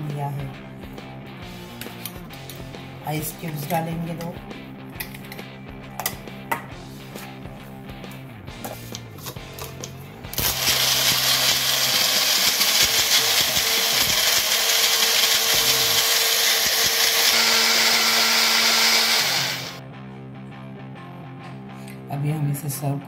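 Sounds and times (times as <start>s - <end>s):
blender motor running: 10.4s - 19.8s.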